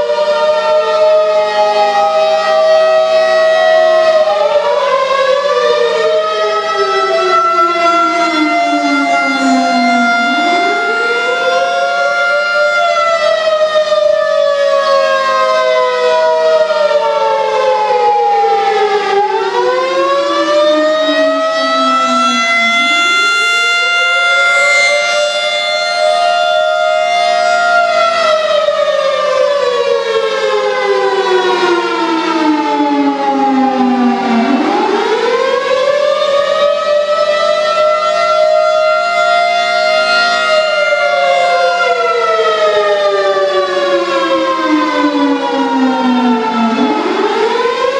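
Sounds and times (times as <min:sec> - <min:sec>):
rotating siren winding up and down: 0:06.8 - 0:13.4, 0:21.1 - 0:26.4.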